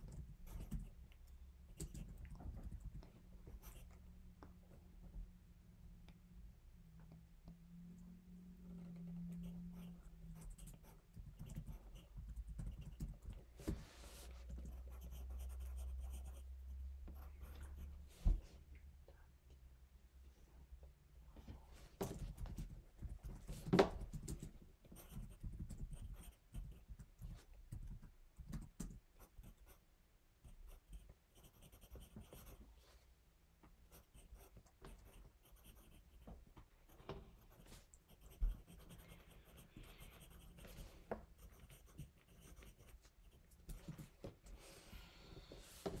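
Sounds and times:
pencil scratching on paper: 0:00.4 - 0:01.0, 0:03.5 - 0:04.0, 0:09.4 - 0:16.5, 0:17.1 - 0:18.4, 0:24.9 - 0:27.5, 0:30.4 - 0:32.6, 0:33.9 - 0:36.3, 0:36.9 - 0:44.1.

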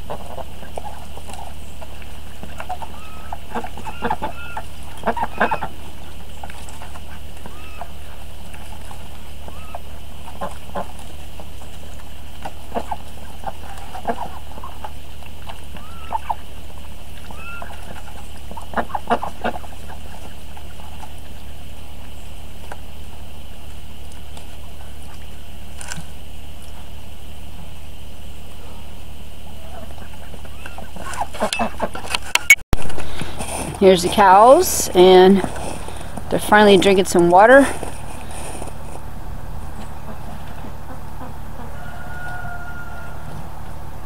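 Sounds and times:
ducks calling: 0:00.0 - 0:25.8, 0:26.5 - 0:32.4, 0:33.0 - 0:44.0.

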